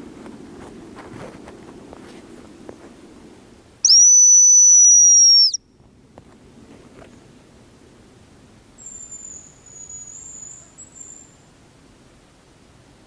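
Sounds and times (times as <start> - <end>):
high thin lure whistle: 3.8 - 5.6.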